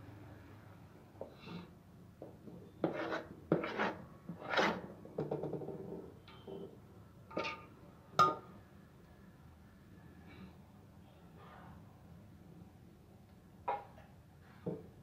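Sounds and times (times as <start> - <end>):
spoon scraping metal bowl: 2.8 - 4.8.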